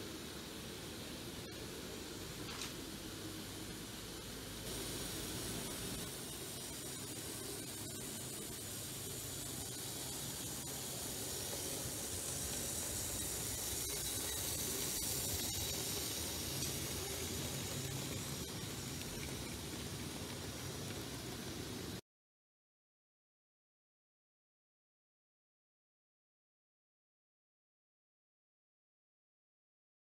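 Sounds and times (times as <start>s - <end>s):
model train motor whirring: 0.0s - 22.0s.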